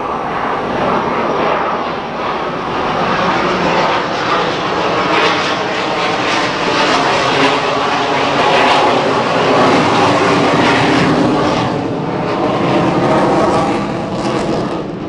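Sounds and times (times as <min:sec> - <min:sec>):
jet engines roaring: 0:00.0 - 0:15.0.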